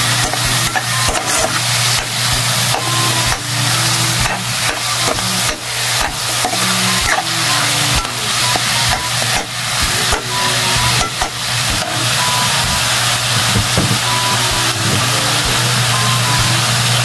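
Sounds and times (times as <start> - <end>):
meat sizzling in a wok: 0.0 - 15.1
metal spatula scraping: 0.1 - 7.3.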